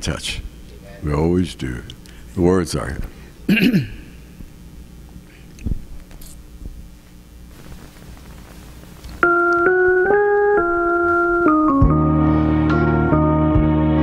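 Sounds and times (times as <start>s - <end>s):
faint hum: 0.0s - 13.6s
organ-like keyboard held notes: 9.1s - 14.0s.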